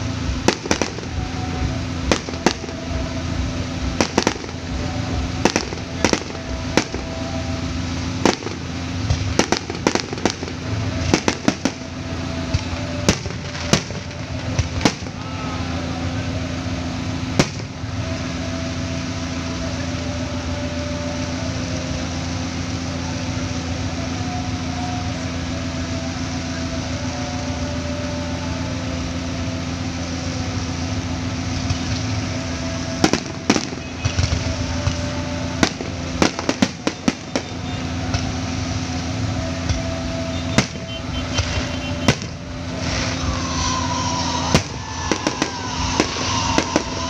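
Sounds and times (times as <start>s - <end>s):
steady low hum: 0.0s - 47.0s
firework shells bursting: 0.3s - 3.2s, 3.8s - 15.2s, 17.3s - 17.9s, 32.8s - 38.8s, 39.6s - 47.0s.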